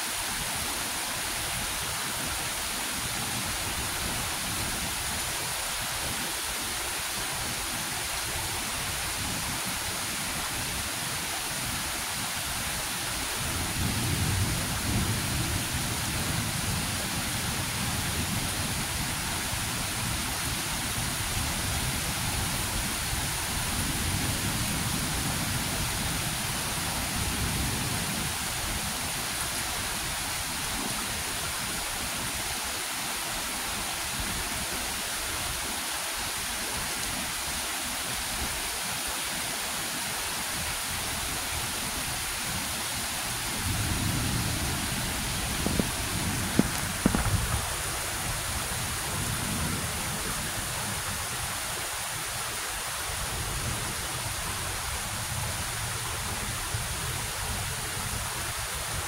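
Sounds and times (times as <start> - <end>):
heavy rain falling: 0.0 - 59.0
thunder rumbling: 43.6 - 48.5.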